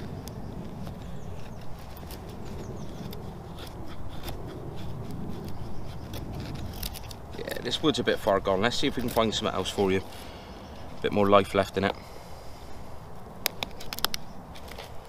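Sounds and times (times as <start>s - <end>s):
knife scraping wood: 0.0s - 11.1s.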